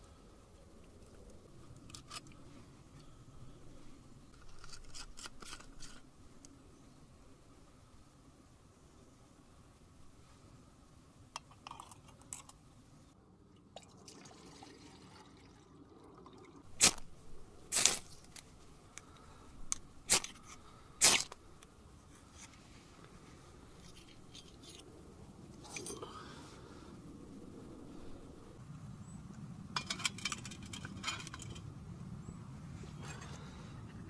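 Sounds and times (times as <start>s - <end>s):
handling clicks and rustles: 29.3s - 31.8s.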